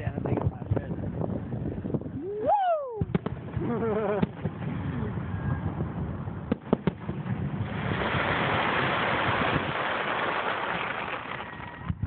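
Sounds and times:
fireworks crackling hiss: 3.4s - 12.0s
fireworks shells bursting: 6.5s - 12.0s.

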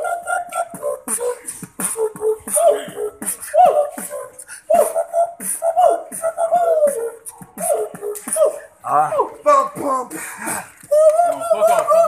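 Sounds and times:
man humming a gliding melody: 0.0s - 8.6s
beatboxing kick and hi-hat: 0.0s - 8.8s.

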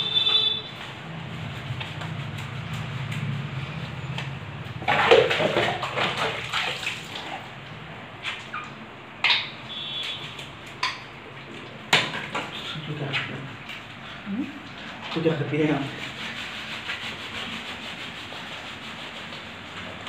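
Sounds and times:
water splashing: 4.2s - 18.5s.

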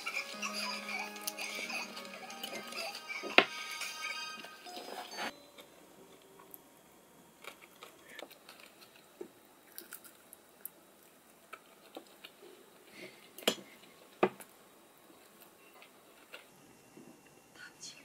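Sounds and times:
quiet chewing: 7.4s - 16.5s.

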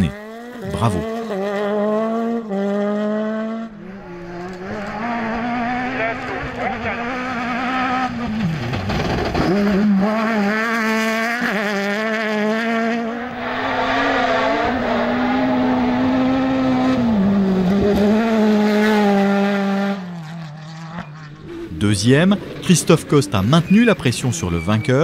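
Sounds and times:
buggy engine at high pitch: 0.0s - 25.0s.

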